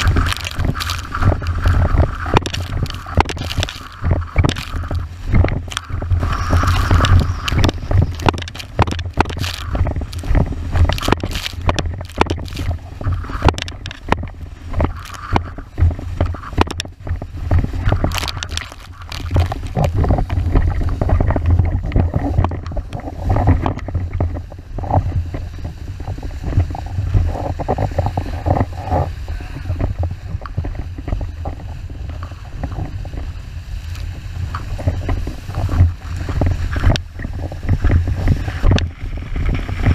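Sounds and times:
water slapping board: 0.0 - 29.2
wind buffeting microphone: 0.0 - 39.9.

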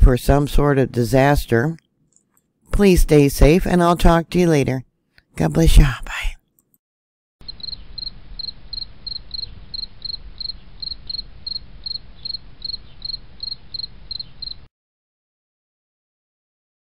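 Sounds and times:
cricket chirping: 7.4 - 14.7.

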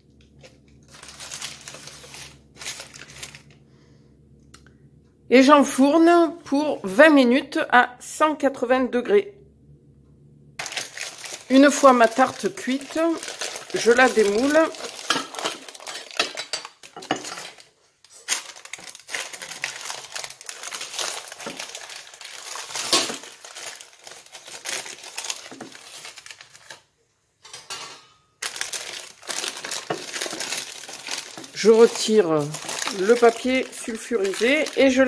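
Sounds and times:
baking paper crinkling: 0.0 - 3.6, 10.6 - 26.9, 28.4 - 35.0
dishware clinking: 27.4 - 28.4.

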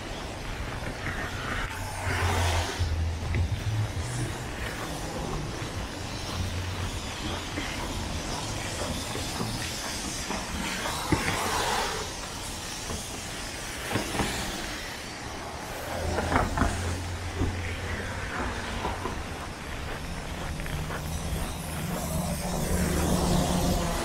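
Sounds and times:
traffic noise: 0.0 - 24.0
low engine hum: 1.9 - 7.5.

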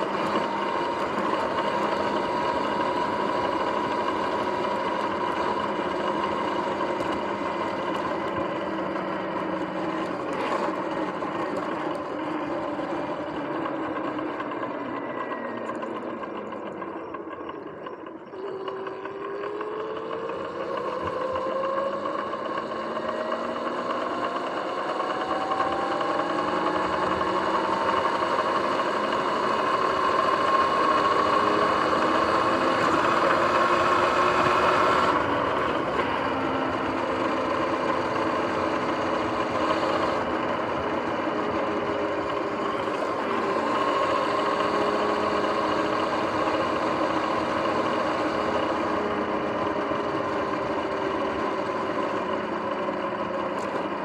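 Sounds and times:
electric dirt bike motor whining: 0.0 - 54.0.

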